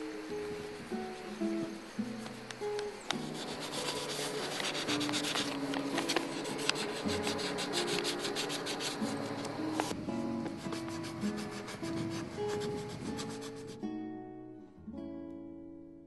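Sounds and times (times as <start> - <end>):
soft music: 0.0 - 16.0
pencil scratching on paper: 3.1 - 9.9, 10.5 - 13.8.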